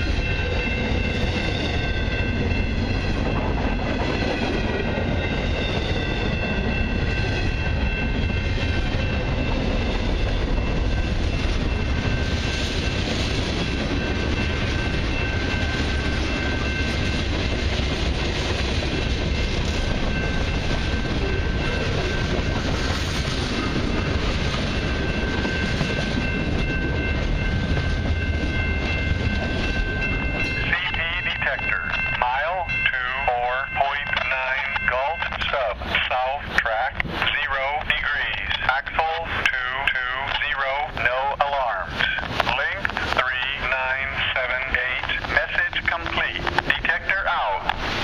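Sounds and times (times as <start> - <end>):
freight train wheels rumbling: 0.0 - 48.0
wheels clickety-clack over joints: 41.9 - 47.9.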